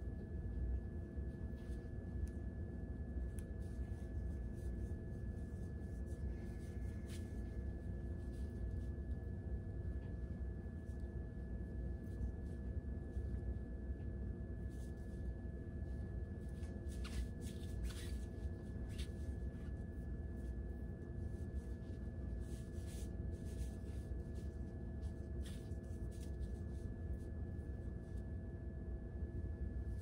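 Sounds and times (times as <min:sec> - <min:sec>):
low room hum: 0:00.0 - 0:30.0
rustling of hair being handled: 0:03.3 - 0:09.4, 0:16.0 - 0:27.8.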